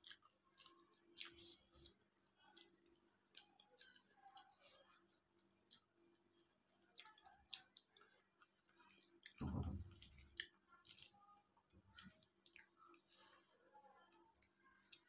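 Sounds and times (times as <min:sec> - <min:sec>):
wet chewing and mouth clicks: 0:00.0 - 0:15.0
deep soft thump: 0:09.4 - 0:09.9.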